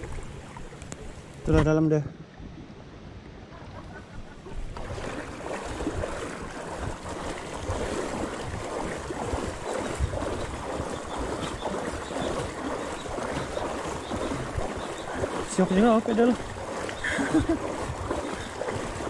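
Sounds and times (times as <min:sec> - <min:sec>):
wind on microphone: 0:04.2 - 0:19.0
bike wheels splashing through water: 0:04.7 - 0:19.0.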